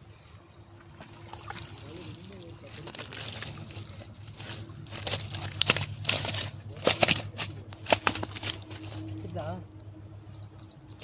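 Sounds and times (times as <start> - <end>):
fish slapping wetly: 1.0 - 9.0
net crackling and rustling: 2.0 - 9.2.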